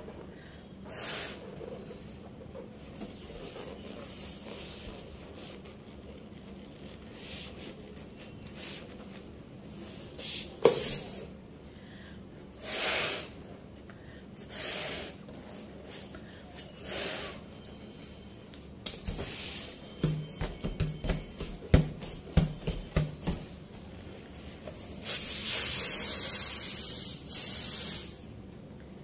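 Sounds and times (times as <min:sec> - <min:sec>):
puffs of breath into balloon: 0:00.8 - 0:02.2, 0:09.8 - 0:10.6, 0:11.9 - 0:13.5, 0:14.1 - 0:15.2, 0:25.0 - 0:28.4.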